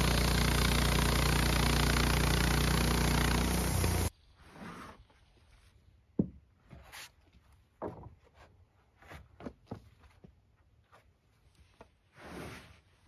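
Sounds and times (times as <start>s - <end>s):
wooden boards knocking and scraping: 7.6s - 10.0s.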